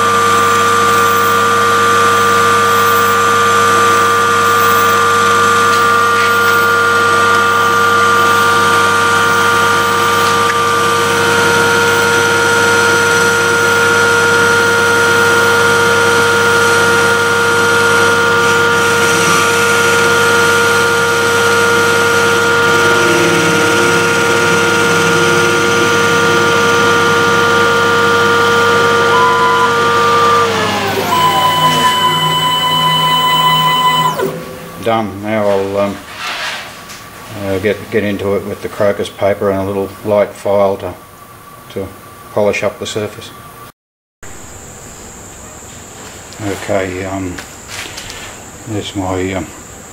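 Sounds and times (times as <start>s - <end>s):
lathe machine whine: 0.0s - 38.9s.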